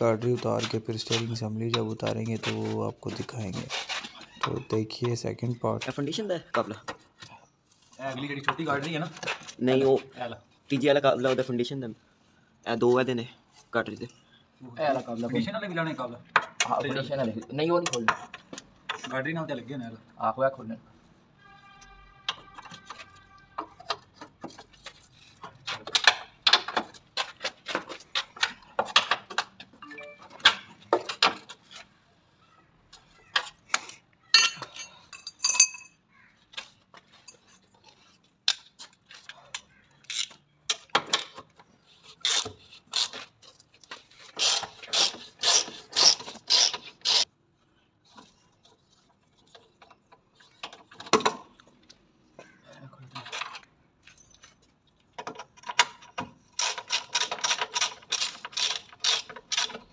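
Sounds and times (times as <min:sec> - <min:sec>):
steel tools clinking: 0:34.4 - 0:36.0.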